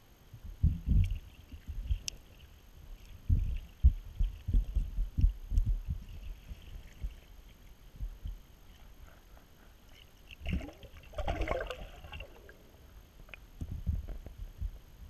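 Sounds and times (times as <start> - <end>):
muffled underwater thumps: 0.5 - 2.0, 3.2 - 7.2, 13.6 - 14.8
fish splashing and bubbling: 9.8 - 13.5.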